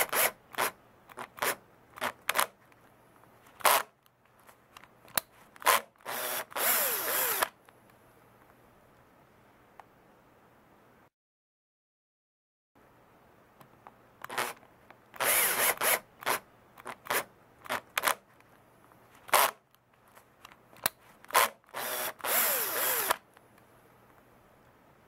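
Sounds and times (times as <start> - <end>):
cordless drill driving screw: 0.0 - 2.5, 3.6 - 3.9, 5.6 - 7.5, 14.3 - 14.6, 15.2 - 16.4, 19.3 - 19.6, 21.3 - 23.2.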